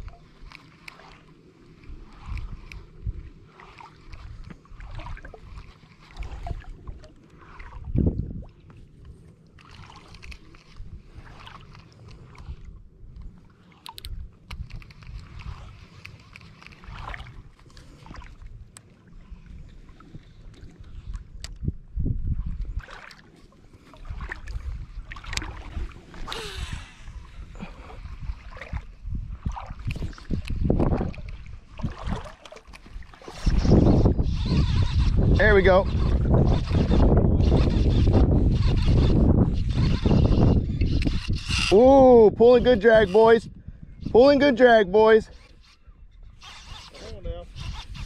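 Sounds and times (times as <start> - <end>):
water sloshing around legs: 0.0 - 21.6, 22.3 - 35.0
wind rumbling on microphone: 0.0 - 48.0
fishing line hissing off reel: 26.2 - 28.4, 35.9 - 41.8, 45.3 - 48.0.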